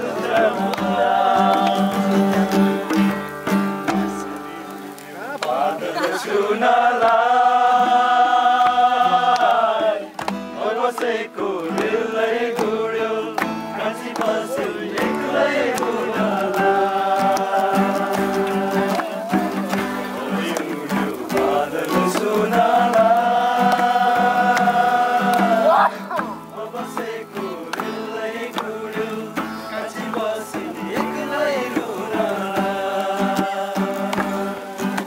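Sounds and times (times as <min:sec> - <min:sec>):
instrumental accompaniment: 0:00.0 - 0:06.1
person singing long notes: 0:00.0 - 0:35.0.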